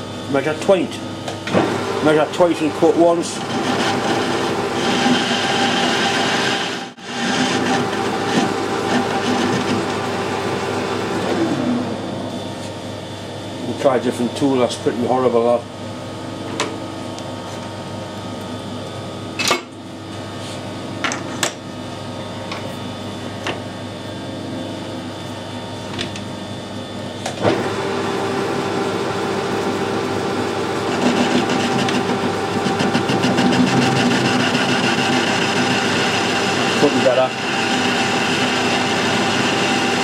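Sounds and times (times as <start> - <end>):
lathe running hum: 0.0 - 40.0
lathe cutting steel: 1.6 - 11.3, 27.5 - 40.0.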